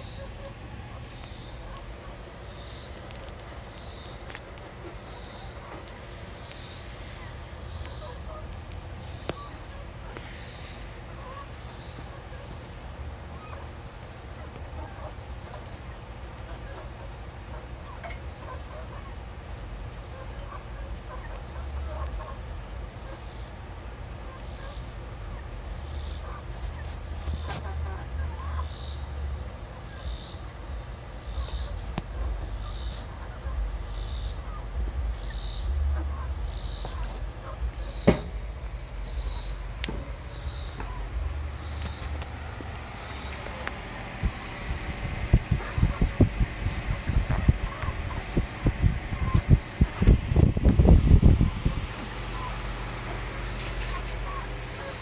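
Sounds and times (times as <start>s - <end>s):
hen clucking: 0.0s - 55.0s
insects pulsing hiss: 0.0s - 55.0s
low rumble: 25.2s - 54.9s.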